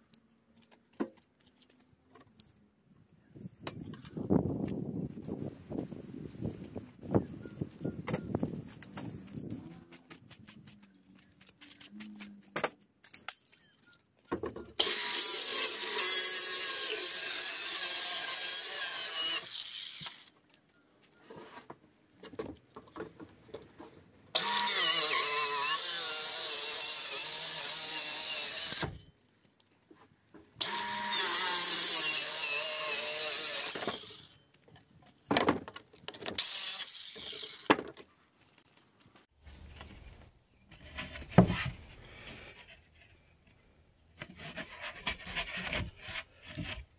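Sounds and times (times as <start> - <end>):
power tool running: 14.8 - 20.3, 24.4 - 28.9, 30.6 - 34.3.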